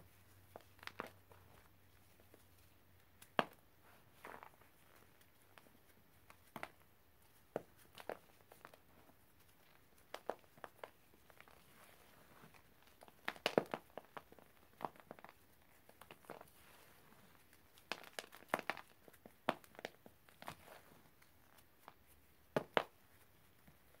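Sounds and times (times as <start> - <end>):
chalky chunks crunching: 7.6 - 23.0.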